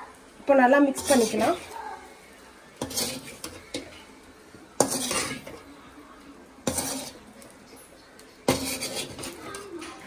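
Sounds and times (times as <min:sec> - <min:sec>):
metal spatula scraping a pan: 0:00.9 - 0:01.8, 0:02.7 - 0:05.8, 0:06.6 - 0:10.0
spatula clanking on pan: 0:02.8 - 0:04.1, 0:04.8 - 0:05.6, 0:06.6 - 0:07.2, 0:08.4 - 0:10.0.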